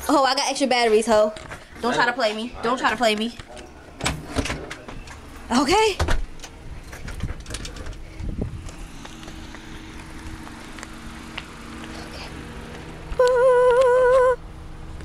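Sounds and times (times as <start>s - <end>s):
footsteps on concrete: 8.2s - 12.0s
held wavering hummed note: 10.9s - 14.5s.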